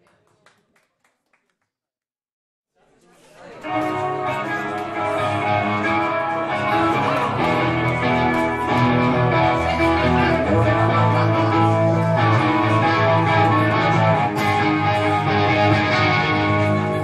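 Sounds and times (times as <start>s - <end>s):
electric guitar chords: 3.6s - 17.0s
bass guitar: 3.7s - 17.0s.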